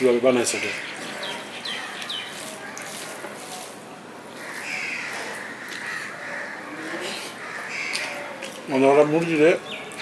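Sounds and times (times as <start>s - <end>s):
birds calling: 0.0s - 3.7s, 4.3s - 10.0s
crow cawing: 0.5s - 1.0s, 4.4s - 8.5s.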